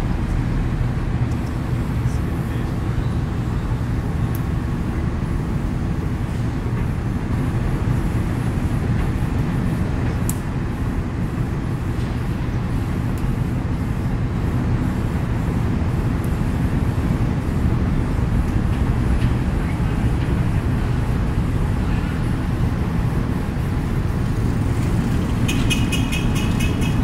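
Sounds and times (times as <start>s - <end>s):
excavator diesel engine rumbling: 17.0s - 27.0s.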